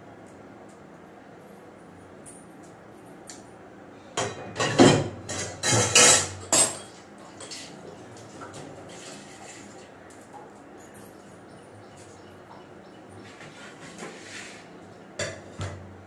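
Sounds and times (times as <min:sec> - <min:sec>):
metal pots and utensils clattering: 0:04.2 - 0:09.8, 0:15.2 - 0:15.9
faint metal clinks: 0:10.1 - 0:13.0.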